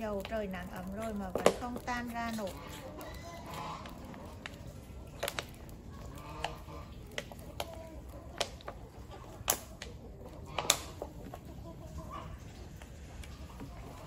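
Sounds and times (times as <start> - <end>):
sharp pops and clicks: 0.0 - 8.8, 9.4 - 10.0, 10.6 - 11.0
chickens clucking: 0.0 - 14.0.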